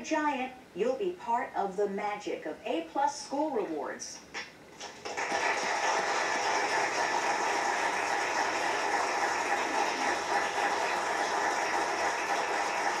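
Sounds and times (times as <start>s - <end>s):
audience applauding: 4.8s - 13.0s.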